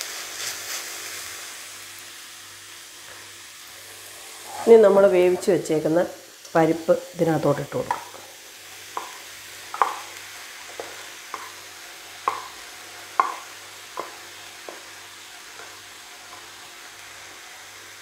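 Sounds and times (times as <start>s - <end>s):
faint sizzle: 0.0s - 18.0s
food tapping and plopping into wok: 8.9s - 10.1s, 12.2s - 14.8s.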